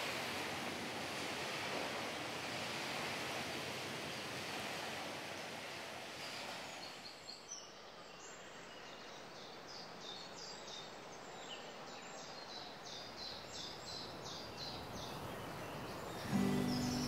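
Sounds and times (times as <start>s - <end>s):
small birds chirping: 6.8s - 17.0s.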